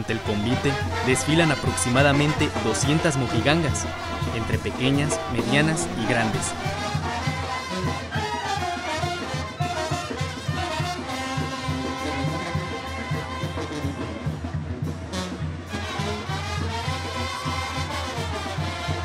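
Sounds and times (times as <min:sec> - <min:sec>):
pulsing tuba bass line: 0:00.0 - 0:08.3, 0:10.7 - 0:14.4
trumpets and trombones: 0:00.0 - 0:19.0.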